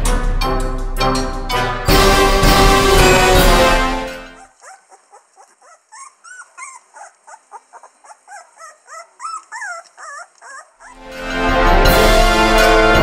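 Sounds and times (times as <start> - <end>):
background music: 0.0 - 4.5, 11.0 - 13.0
puppies whining: 4.3 - 11.0.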